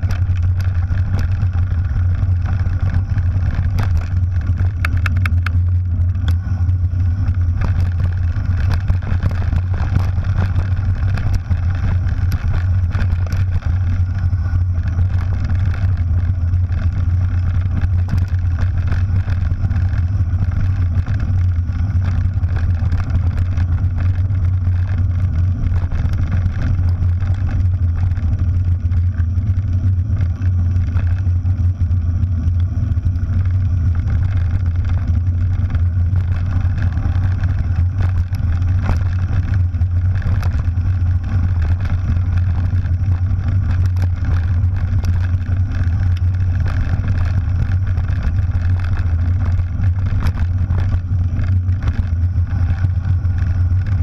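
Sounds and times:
bike rattling: 0:00.0 - 0:54.0
tyres rolling over gravel: 0:00.0 - 0:54.0
wind buffeting camera: 0:00.0 - 0:54.0.

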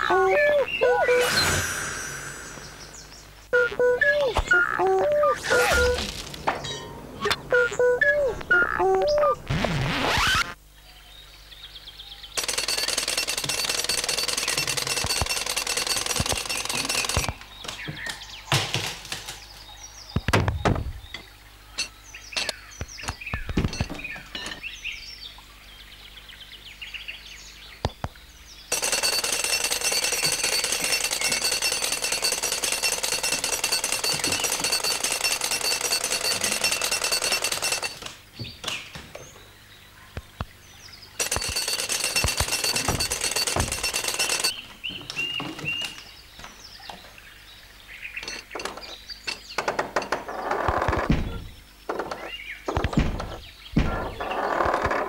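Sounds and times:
small squeaky effects: 0:00.0 - 0:03.0, 0:03.6 - 0:10.6, 0:12.4 - 0:17.3, 0:28.7 - 0:38.0, 0:41.2 - 0:44.5
cartoon woodpecker drumming rattle: 0:12.4 - 0:17.4, 0:28.7 - 0:38.1, 0:41.2 - 0:44.6, 0:48.2 - 0:51.1.

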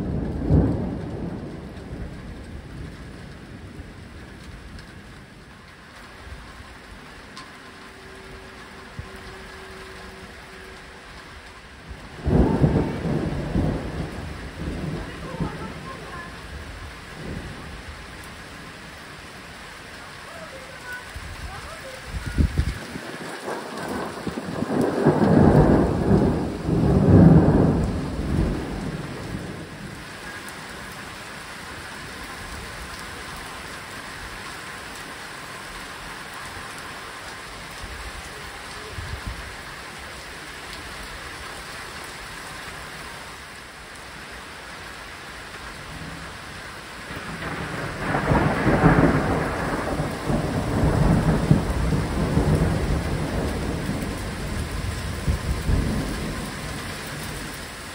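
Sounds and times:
rolling thunder: 0:00.0 - 0:05.6, 0:11.8 - 0:18.8, 0:21.1 - 0:30.3, 0:47.0 - 0:57.9
heavy rain falling: 0:00.0 - 0:57.9.

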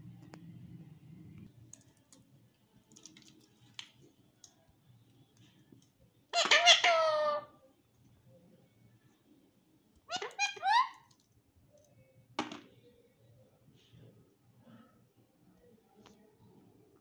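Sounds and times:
parakeet squawk: 0:06.3 - 0:07.5, 0:10.1 - 0:11.1.

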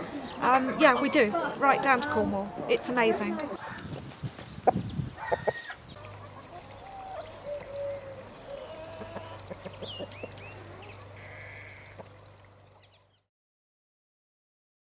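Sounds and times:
chickens clucking: 0:00.0 - 0:12.2
wild birds chirping: 0:00.0 - 0:13.3.

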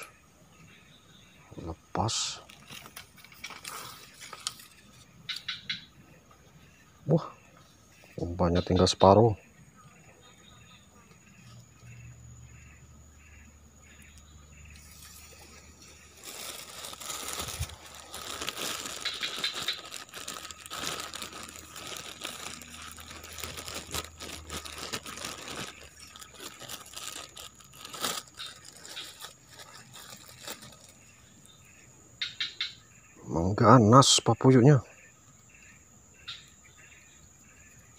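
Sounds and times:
plastic bag crinkling: 0:14.8 - 0:31.1.

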